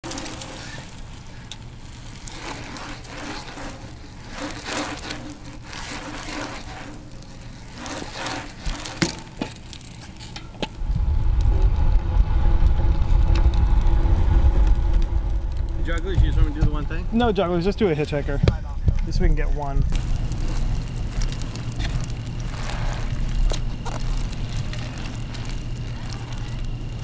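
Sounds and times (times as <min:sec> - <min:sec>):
bike tyres clicking and scuffing: 0:00.0 - 0:27.0
wind and road noise rumble: 0:10.6 - 0:27.0.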